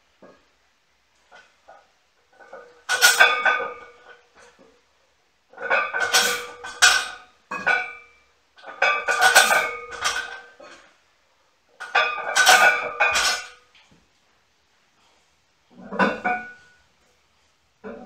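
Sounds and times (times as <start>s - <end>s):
weight plates clanking on barbell: 2.4s - 4.0s, 5.6s - 10.8s, 11.8s - 13.6s, 15.7s - 16.8s.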